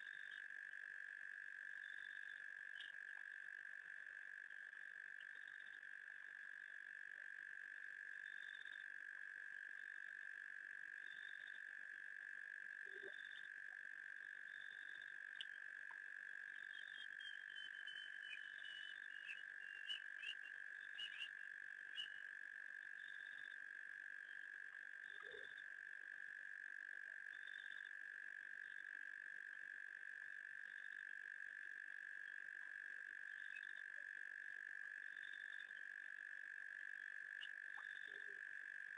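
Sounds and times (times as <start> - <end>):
frogs and insects chorus: 0.0 - 38.9
chirps and clicks: 1.9 - 3.4, 5.2 - 5.8, 14.9 - 23.6, 33.3 - 33.9, 37.0 - 38.5.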